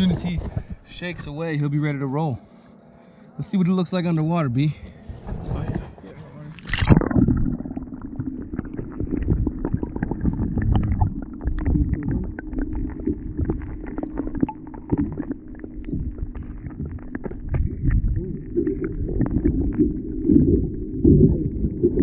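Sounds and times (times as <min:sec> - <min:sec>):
underwater rumble of moving water: 0:00.0 - 0:02.7, 0:03.5 - 0:22.0
small underwater clicks and crackles: 0:06.5 - 0:22.0.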